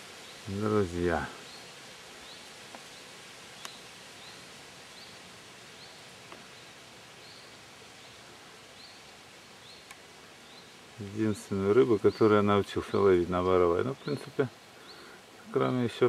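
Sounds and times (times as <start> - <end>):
soft outdoor hiss: 0.0 - 16.0
faint clicks: 3.6 - 3.8, 6.3 - 6.5, 9.8 - 10.1.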